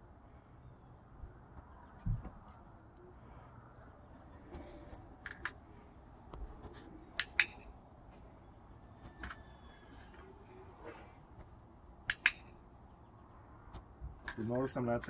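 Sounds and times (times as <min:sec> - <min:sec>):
dog-training clicker double click: 0:07.2 - 0:07.6, 0:12.1 - 0:12.5.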